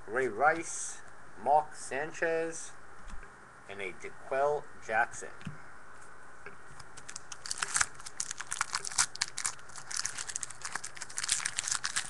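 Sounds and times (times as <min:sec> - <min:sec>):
wrapper tearing and crinkling: 0:07.0 - 0:12.0.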